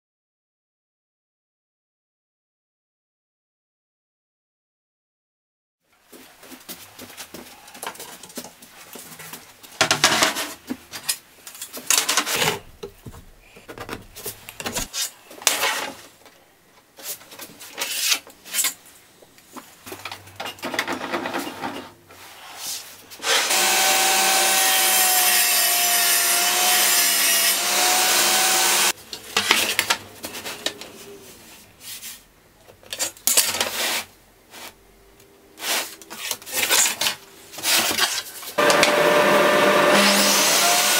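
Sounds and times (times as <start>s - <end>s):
wood knocks and scrapes: 11.8s - 14.9s
table saw cutting plywood: 23.2s - 28.9s, 38.6s - 40.9s.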